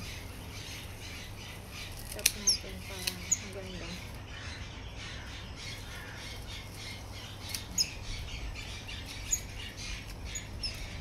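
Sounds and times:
birds squawking and chirping: 0.0 - 11.0
pruning shears clicking: 2.0 - 3.6.

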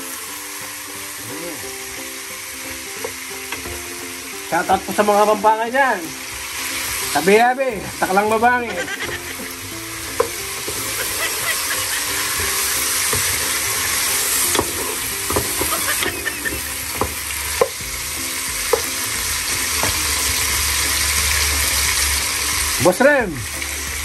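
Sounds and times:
chicken sizzling in oil: 0.0 - 24.0
utensil scraping a pan: 10.2 - 17.8.

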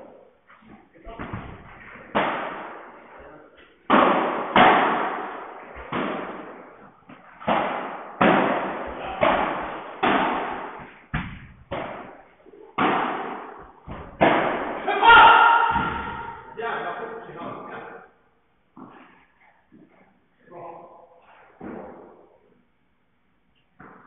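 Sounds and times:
padel ball hits echoing: 3.9 - 6.6, 7.4 - 12.2, 12.8 - 16.5.

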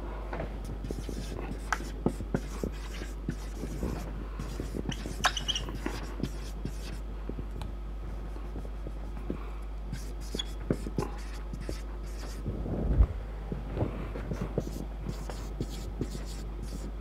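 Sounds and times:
marker pen scratching on whiteboard: 0.8 - 7.0, 9.9 - 12.4, 14.3 - 16.9
marker squeak: 4.5 - 6.0, 10.0 - 12.3.

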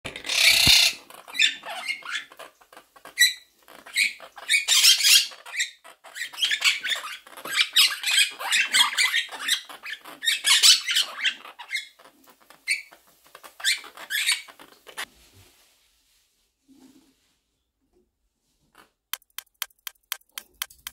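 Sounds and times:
parrots chattering and squawking: 0.1 - 15.1.

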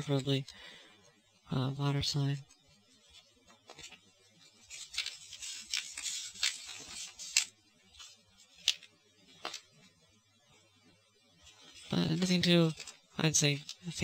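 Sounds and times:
paper pages rustling: 2.4 - 9.9, 11.4 - 14.0.

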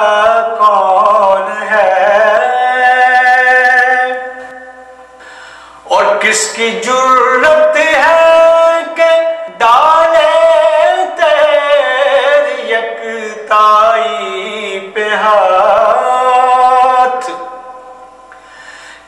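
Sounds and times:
man singing devotional song: 0.0 - 5.1, 5.8 - 18.0.

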